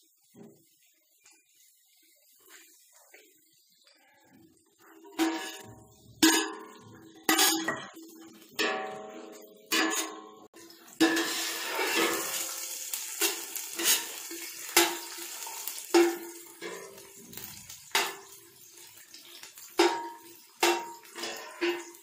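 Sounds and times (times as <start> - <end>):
ladle knocking and scraping pot: 4.8 - 18.7, 19.8 - 22.0
onions sizzling in oil: 10.6 - 22.0.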